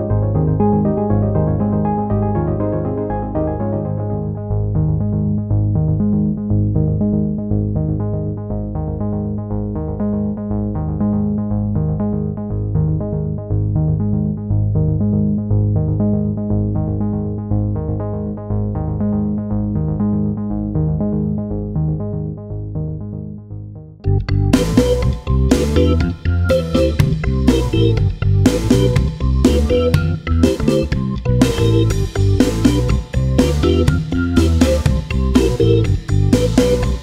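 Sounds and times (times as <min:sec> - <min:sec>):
electronic synthesizer music: 0:00.0 - 0:09.9, 0:24.0 - 0:37.0.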